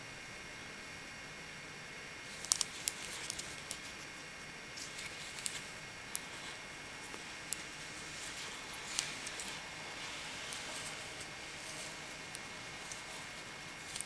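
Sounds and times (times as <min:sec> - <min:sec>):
faint hiss: 0:02.2 - 0:14.0
knitting needles clicking: 0:02.3 - 0:03.9, 0:07.5 - 0:09.7, 0:10.4 - 0:14.0.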